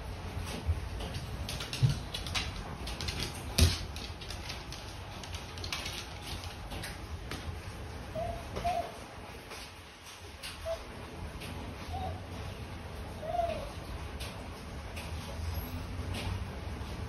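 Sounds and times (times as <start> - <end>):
dog claws clicking on wooden floor: 0.5 - 7.5
dog whining: 8.1 - 9.1, 10.5 - 11.0, 11.8 - 12.5, 13.2 - 13.9.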